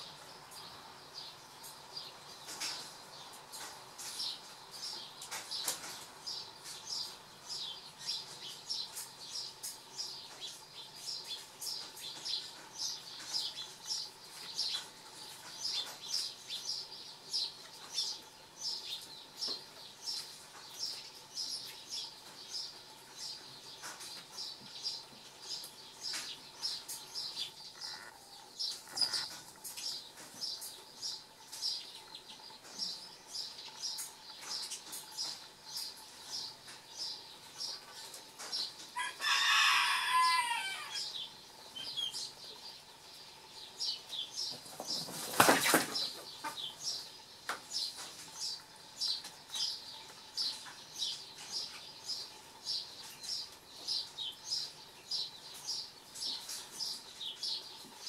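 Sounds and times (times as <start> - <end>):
small bird chirping: 0.0 - 39.4, 40.0 - 58.0
wings flapping: 44.8 - 46.1.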